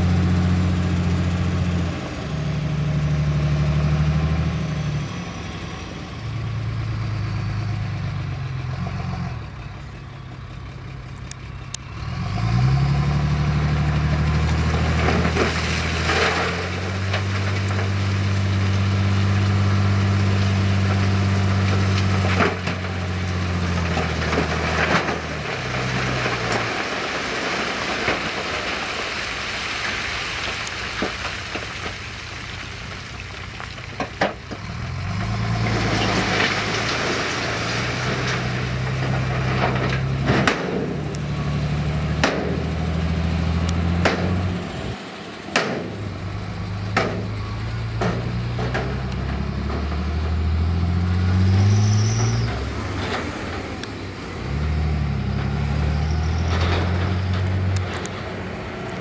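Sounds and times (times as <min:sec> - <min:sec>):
diesel engine revving: 0:00.0 - 0:59.0
rock crunching and scraping: 0:13.8 - 0:43.0.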